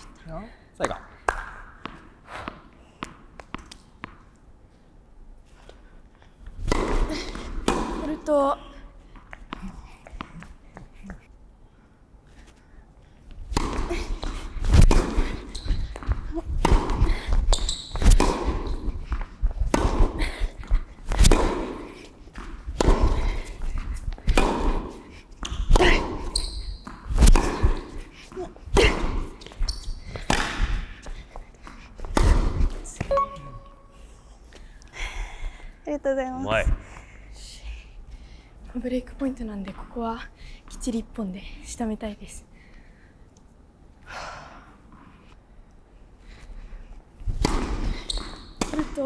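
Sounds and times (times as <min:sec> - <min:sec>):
tennis ball bouncing: 0:06.6 - 0:08.4, 0:13.4 - 0:33.8, 0:47.3 - 0:49.0.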